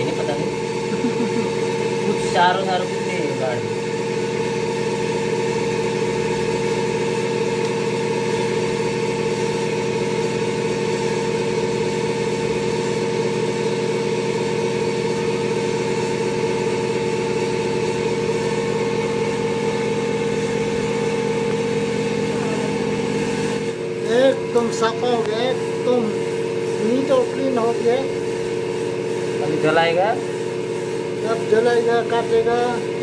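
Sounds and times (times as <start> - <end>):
engine droning hum: 15.4 - 28.2.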